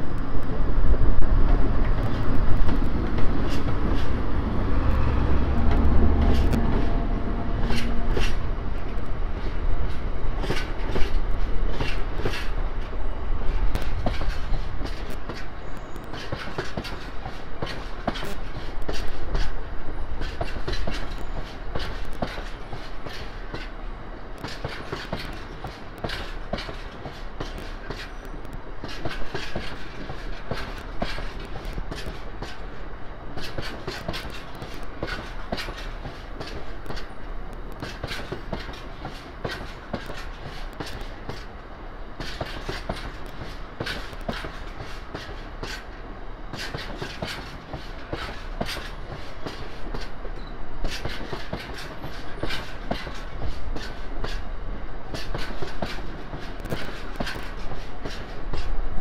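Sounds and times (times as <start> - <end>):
diesel locomotive engine: 0.0 - 59.0
train wheels clicking over rail joints: 0.5 - 59.0.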